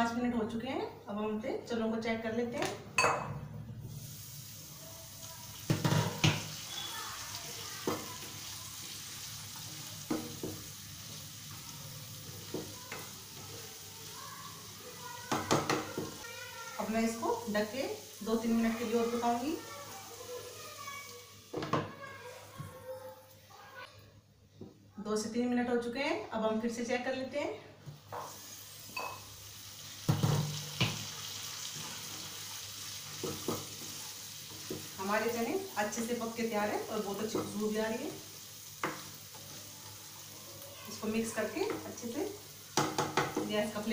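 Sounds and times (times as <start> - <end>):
chickpeas sizzling in a pan: 3.8 - 21.7, 28.0 - 43.9
spoon clinking against pan: 29.0 - 29.3.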